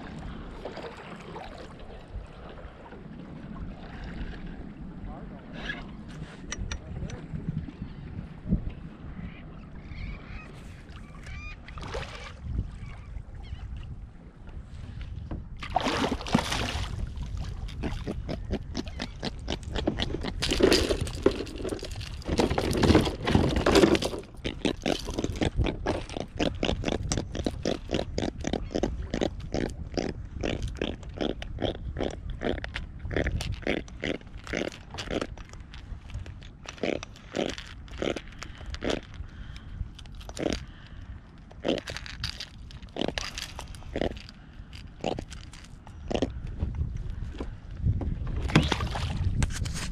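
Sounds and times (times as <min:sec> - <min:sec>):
water splashing: 0:11.7 - 0:12.9, 0:15.6 - 0:18.0
fish grunting croaks: 0:17.8 - 0:35.4, 0:36.6 - 0:39.6, 0:40.2 - 0:40.9, 0:41.6 - 0:46.4.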